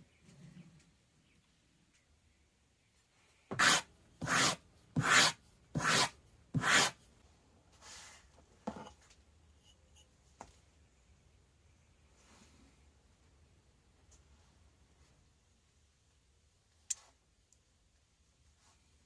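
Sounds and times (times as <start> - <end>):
tool scraping leather strap: 3.5 - 7.0.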